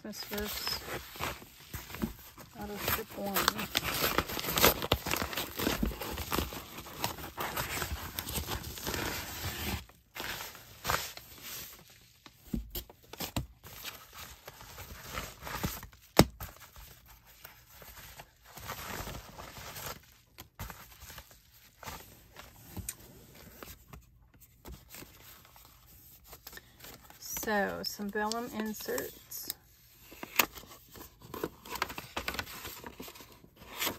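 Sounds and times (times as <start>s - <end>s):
packaging crinkling and tearing: 0.1s - 11.9s, 28.2s - 33.9s.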